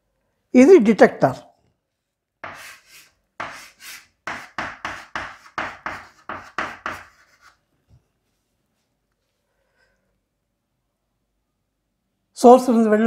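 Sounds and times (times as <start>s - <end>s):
scratchy writing strokes on board: 2.4s - 7.7s.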